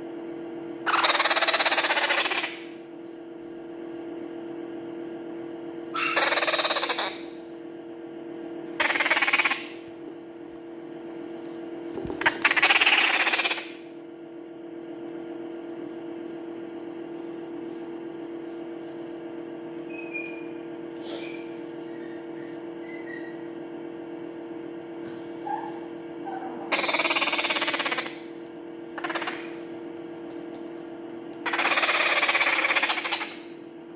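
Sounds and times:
steady low hum: 0:00.0 - 0:33.9
parrot chicks begging calls: 0:00.9 - 0:02.7, 0:06.0 - 0:07.4, 0:08.8 - 0:09.9, 0:12.1 - 0:13.8, 0:26.7 - 0:29.7, 0:31.4 - 0:33.6.

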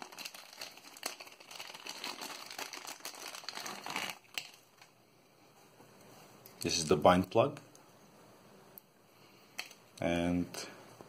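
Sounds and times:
plastic packaging crinkling: 0:00.0 - 0:05.0.

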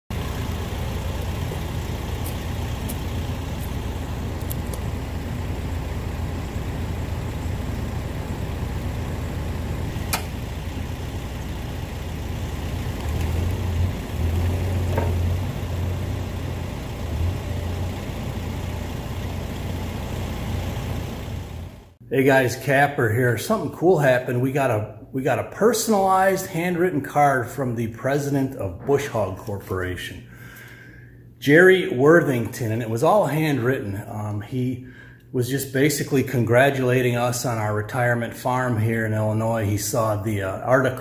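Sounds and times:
diesel engine idling: 0:00.1 - 0:22.0.

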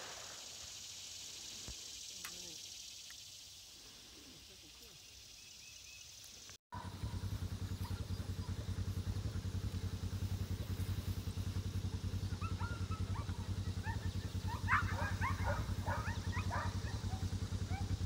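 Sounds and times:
small engine idling: 0:06.2 - 0:18.0.

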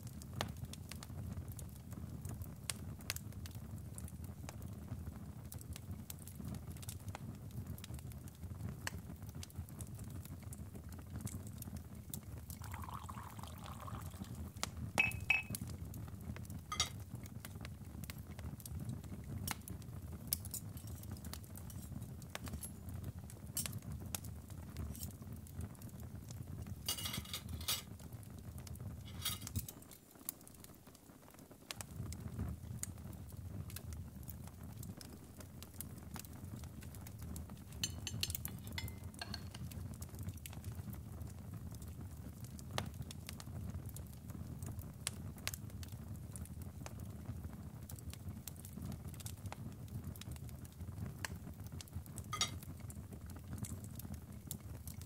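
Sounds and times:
crackling fire: 0:00.0 - 0:55.0
crockery and cutlery clinking: 0:16.7 - 0:17.0, 0:26.9 - 0:27.9, 0:29.1 - 0:29.8, 0:37.8 - 0:39.6, 0:52.4 - 0:52.6.

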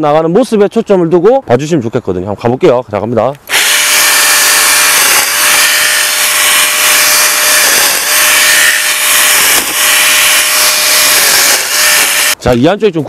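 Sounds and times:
mini chainsaw cutting branches: 0:03.5 - 0:12.4.

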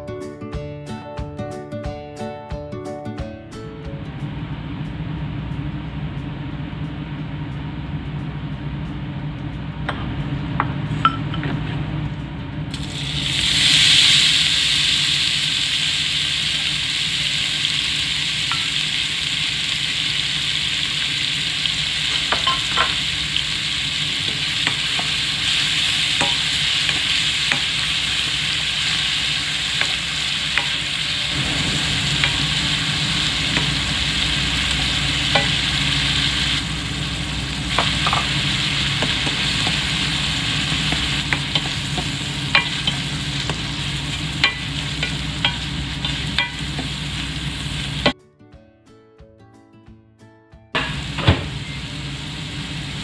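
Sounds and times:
steady low hum: 0:03.9 - 0:12.9, 0:21.6 - 0:48.1
meat sizzling in hot oil: 0:12.7 - 0:48.2, 0:50.8 - 0:53.0.

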